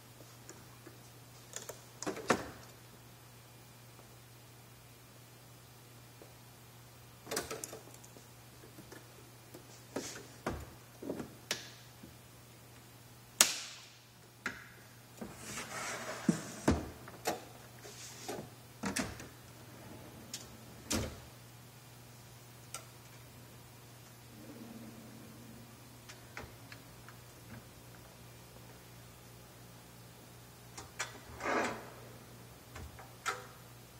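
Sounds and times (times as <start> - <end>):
low steady hum: 0.0 - 33.9
drawer sliding on rails: 15.2 - 17.0, 18.8 - 21.2, 24.3 - 26.6, 30.9 - 32.3.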